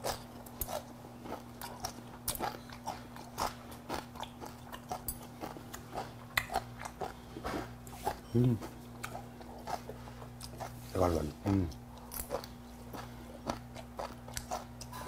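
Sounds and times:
low electrical hum: 0.0 - 15.0
person chewing crunchy food: 0.0 - 15.0.

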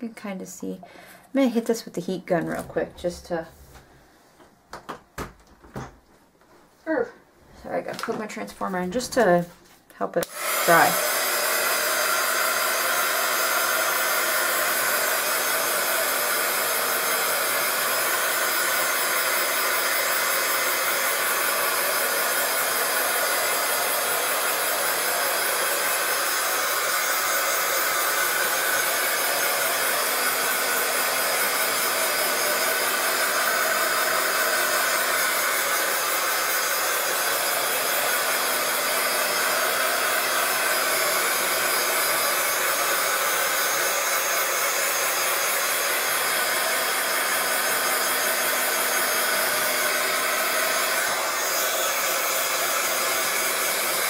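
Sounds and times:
heat gun blowing air: 10.2 - 54.0.

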